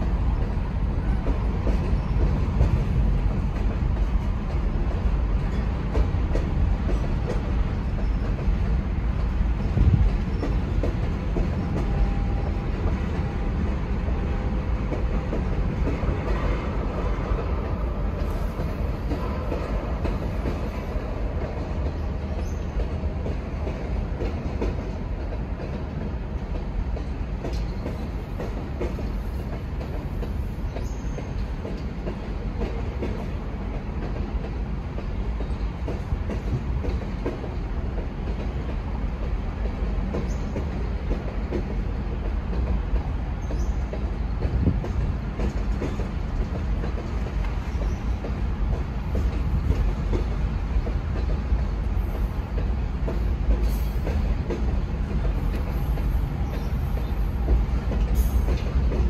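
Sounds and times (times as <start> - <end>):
freight train wheels rumbling on rail: 0.0 - 59.0
wheel clacks over rail joints: 14.1 - 59.0.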